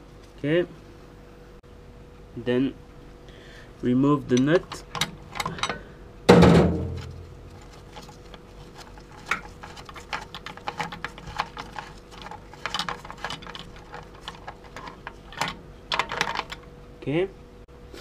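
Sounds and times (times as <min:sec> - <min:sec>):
loud metallic clank: 0:05.4 - 0:07.2.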